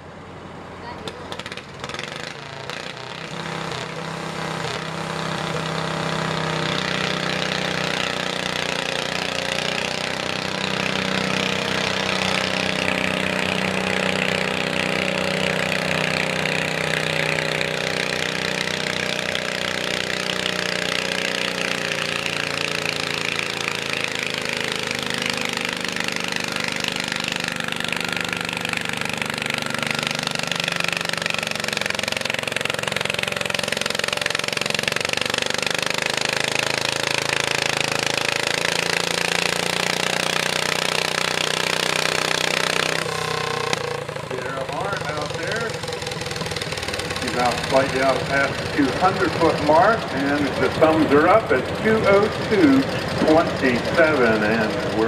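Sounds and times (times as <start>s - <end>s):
tractor engine running hard: 0.0s - 55.0s
rapid rattling beat: 42.9s - 55.0s.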